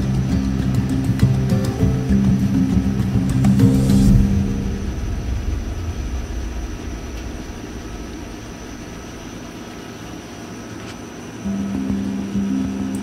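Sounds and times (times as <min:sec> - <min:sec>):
faint high-pitched whine: 0:00.0 - 0:13.0
distant engine rumble: 0:00.1 - 0:10.5.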